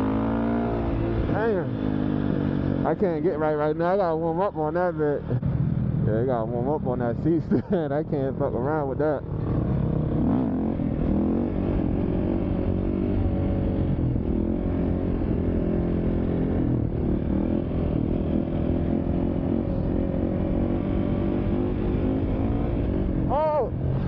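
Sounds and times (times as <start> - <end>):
dirt bike engine revving: 0.0 - 3.3, 9.2 - 24.0.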